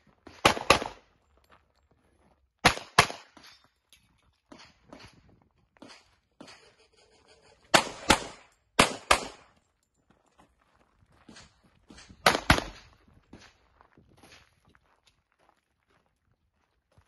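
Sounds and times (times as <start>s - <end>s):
handgun shots: 2.6s - 3.5s, 7.7s - 9.5s, 12.2s - 12.8s.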